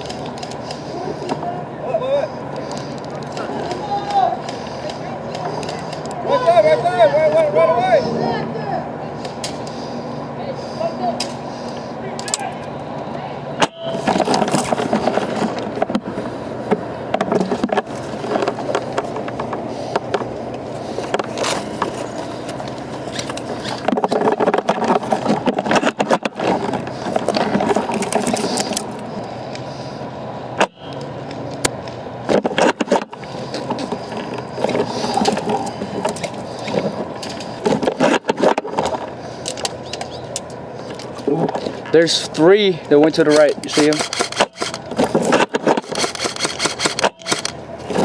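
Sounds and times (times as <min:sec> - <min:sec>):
rustling and handling noise: 0:14.0 - 0:29.7, 0:31.4 - 0:42.4
sharp clicks and knocks: 0:16.7 - 0:22.0, 0:22.6 - 0:29.7, 0:30.6 - 0:41.8, 0:43.2 - 0:48.0.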